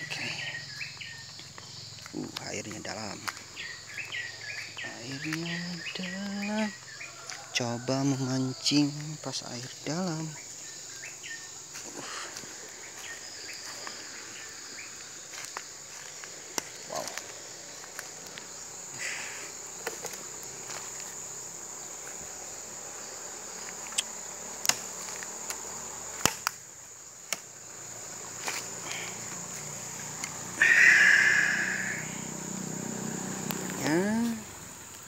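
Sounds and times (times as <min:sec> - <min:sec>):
insects chirring: 0:00.0 - 0:35.0.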